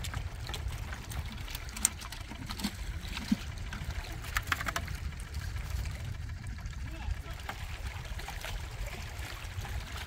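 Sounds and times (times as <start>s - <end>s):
steady low rumble: 0.0s - 10.0s
waves lapping against rocks: 0.0s - 10.0s.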